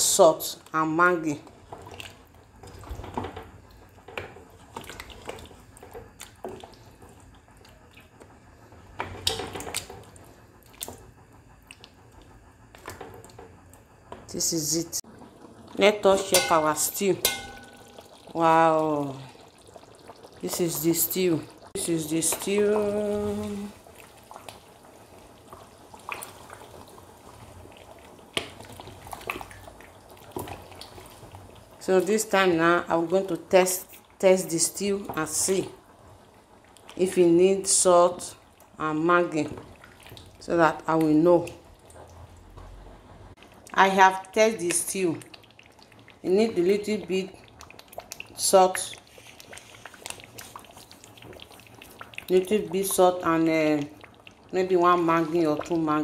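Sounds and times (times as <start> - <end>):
stew squelching and popping: 1.7 - 13.8, 16.3 - 32.0, 43.4 - 56.0
spoon knocking on metal pot: 16.3 - 18.0.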